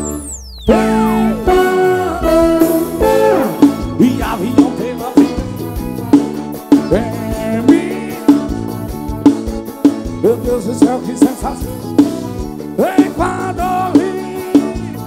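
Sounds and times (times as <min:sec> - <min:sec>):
long falling sweep effect: 0:00.0 - 0:03.6
held bending chords: 0:00.0 - 0:04.8
live forro band music: 0:00.0 - 0:15.0
steady drum beat: 0:00.7 - 0:15.0.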